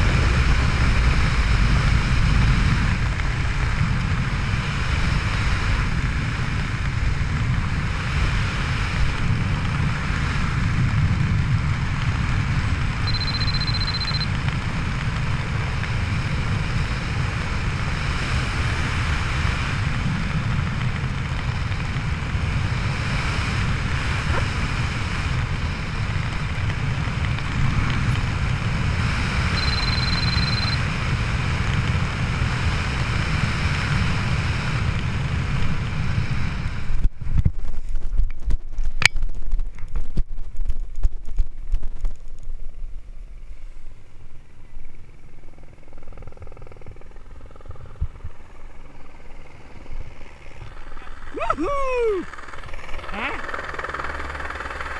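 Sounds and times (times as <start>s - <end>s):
wind rushing over microphone: 0.0s - 54.9s
short high beep: 13.0s - 14.3s, 29.6s - 30.8s.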